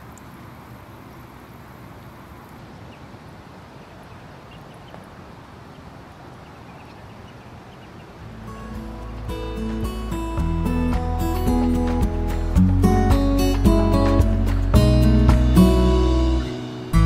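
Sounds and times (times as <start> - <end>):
music: 8.2 - 17.0.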